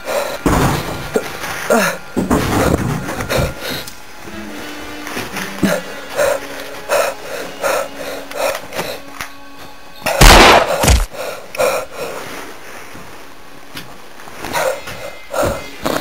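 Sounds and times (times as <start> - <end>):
heavy breathing: 0.0 - 4.0, 5.3 - 9.2, 10.5 - 13.3, 14.2 - 16.0.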